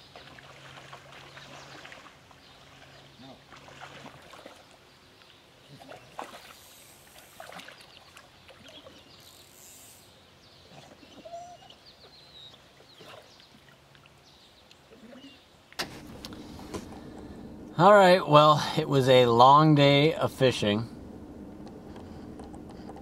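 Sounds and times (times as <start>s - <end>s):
water splashing: 0.0s - 5.0s, 5.7s - 9.1s, 15.8s - 23.0s.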